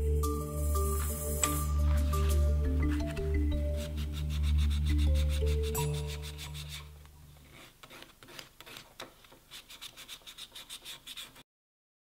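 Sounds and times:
background music: 0.0s - 7.4s
wood sanded by hand on sandpaper: 1.0s - 8.9s, 9.5s - 11.4s.

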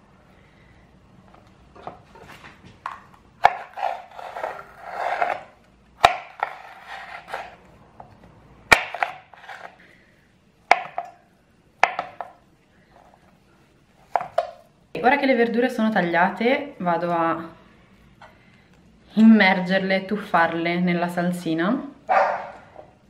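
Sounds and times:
knife crunching through pepper: 3.4s - 7.6s.

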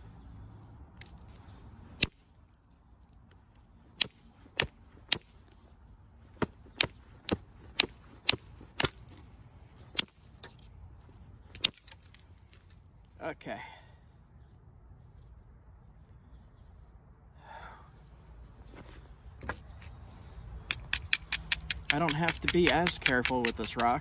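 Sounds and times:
hammerstone tapping flint: 20.7s - 24.0s.

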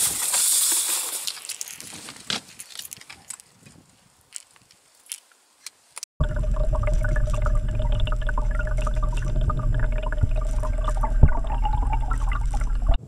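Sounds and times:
crackles and clicks: 0.3s - 13.0s
constant hum: 6.2s - 13.0s
underwater water rushing: 6.2s - 13.0s.

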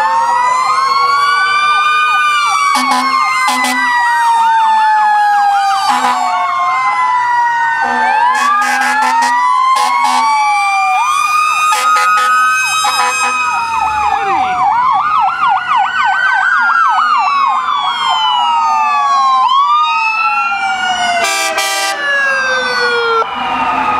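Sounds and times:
sirens wailing and yelping: 0.0s - 23.9s
vehicle horn blasts: 2.8s - 3.9s, 5.9s - 6.2s, 7.8s - 10.3s, 11.7s - 13.4s, 21.2s - 22.0s.

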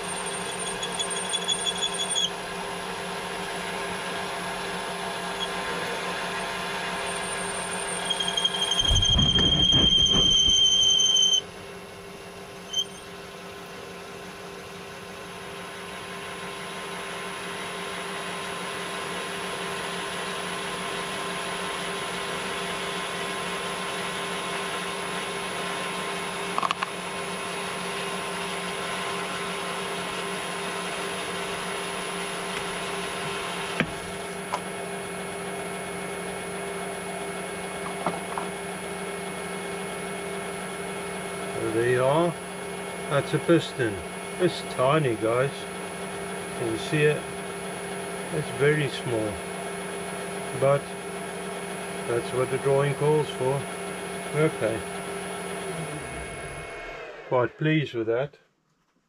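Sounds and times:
cutting tool squealing: 0.0s - 2.4s, 5.2s - 11.5s, 12.6s - 13.1s
lathe humming: 0.0s - 11.5s, 27.2s - 57.4s.

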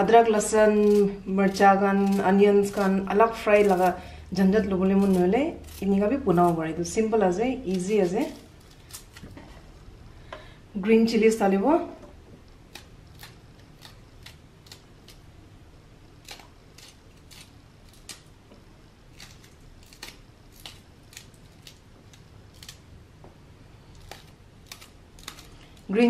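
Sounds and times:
knife slicing chillies: 0.0s - 9.5s, 12.6s - 15.2s, 16.2s - 18.3s, 19.1s - 22.8s, 24.0s - 26.0s.

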